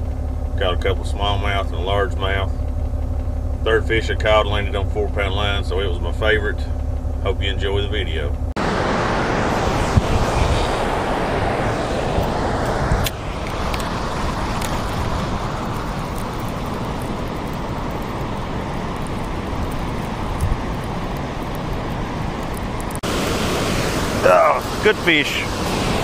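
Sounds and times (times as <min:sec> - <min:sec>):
turbulent water rushing: 0:08.6 - 0:26.0.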